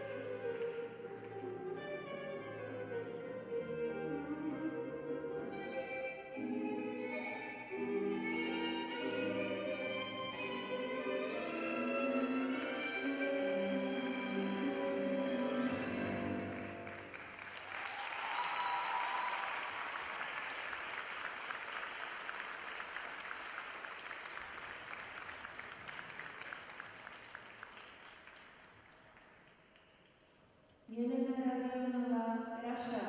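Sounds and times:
orchestral music: 0:00.0 - 0:17.6
crowd applause: 0:14.6 - 0:29.9.

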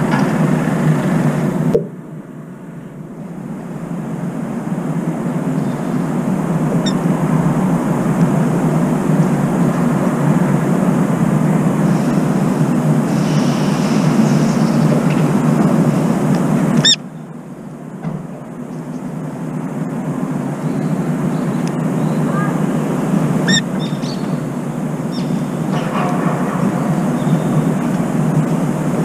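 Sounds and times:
distant city traffic rumble: 0:00.0 - 0:29.0
high bird chirp: 0:16.8 - 0:17.0, 0:23.5 - 0:24.4.

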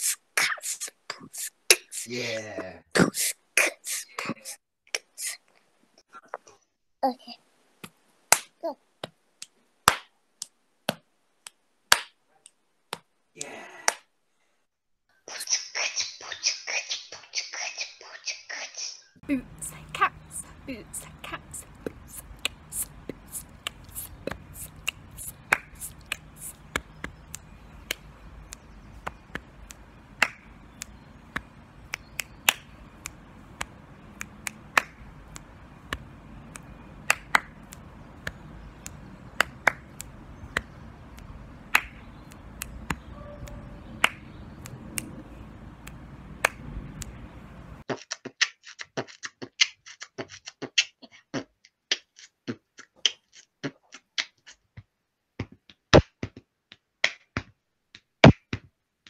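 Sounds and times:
hand clicks body percussion: 0:19.5 - 0:47.3.

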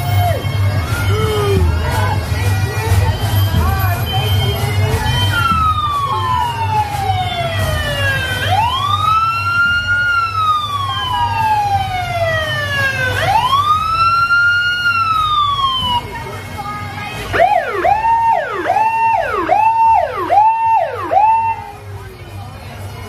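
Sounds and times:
truck engines running: 0:00.0 - 0:23.0
fire engine siren wailing: 0:05.0 - 0:16.2, 0:17.3 - 0:21.8.

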